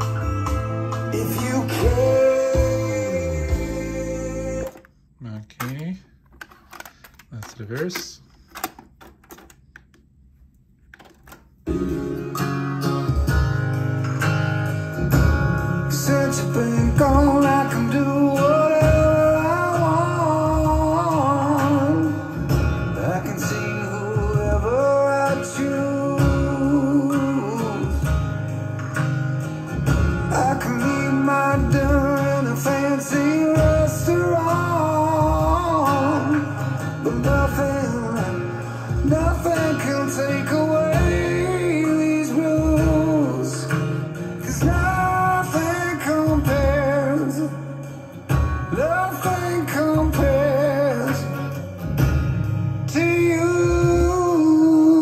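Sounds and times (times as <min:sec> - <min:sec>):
guitar: 0:00.0 - 0:55.0
man singing: 0:01.0 - 0:05.0, 0:15.8 - 0:28.4, 0:30.2 - 0:51.8, 0:52.8 - 0:55.0.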